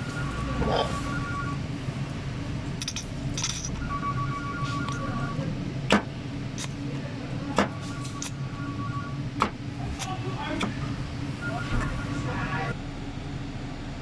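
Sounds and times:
metal parts clicking and clacking: 0:02.8 - 0:03.8.

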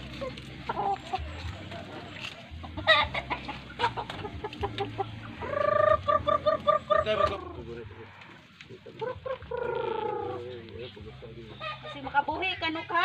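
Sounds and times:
chicken squawking: 0:00.0 - 0:10.6, 0:11.5 - 0:12.2
chickens clucking: 0:00.0 - 0:13.0.

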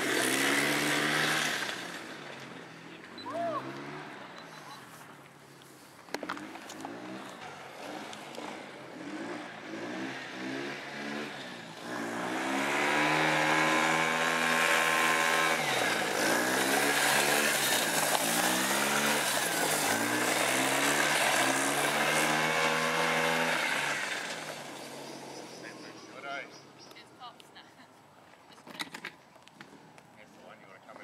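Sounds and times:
small engine revving hard: 0:00.0 - 0:02.5, 0:06.3 - 0:25.8.

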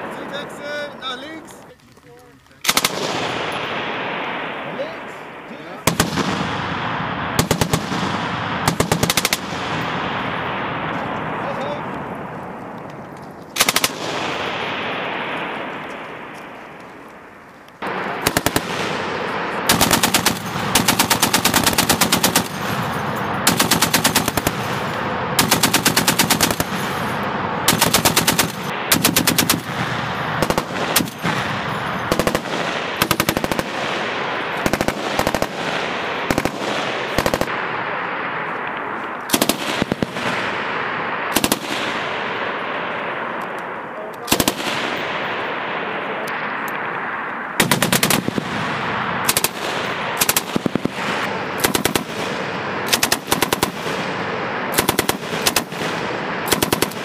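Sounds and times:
machine gun bursts: 0:02.6 - 0:03.3, 0:19.6 - 0:24.8, 0:44.3 - 0:44.6.

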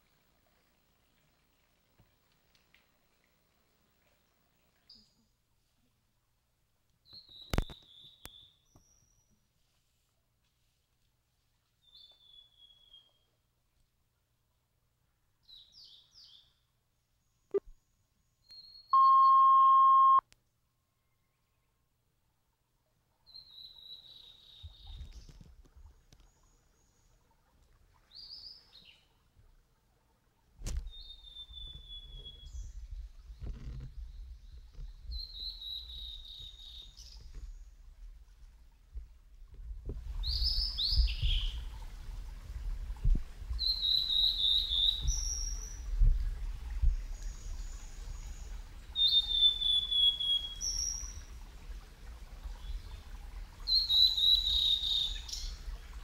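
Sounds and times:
bird notes: 0:19.0 - 0:20.2
electronic beep: 0:19.0 - 0:20.2.

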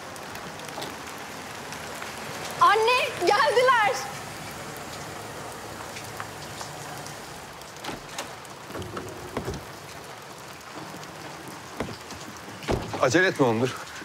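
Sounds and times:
wet street hiss: 0:00.0 - 0:14.0
soft knocks and clicks: 0:07.8 - 0:10.1.

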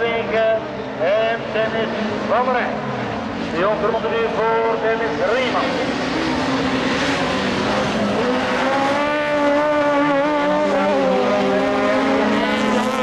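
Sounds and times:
race cars passing: 0:00.0 - 0:13.0.

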